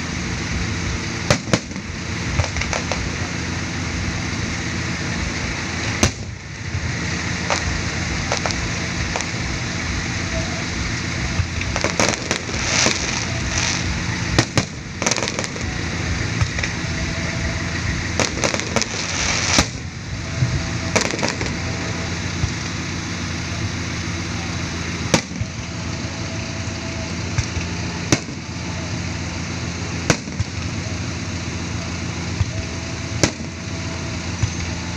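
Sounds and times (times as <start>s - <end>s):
continuous rumble: 0.0s - 34.9s
fireworks bursting: 0.0s - 34.9s
rapid fireworks pops and bangs: 0.4s - 31.6s, 32.3s - 34.9s.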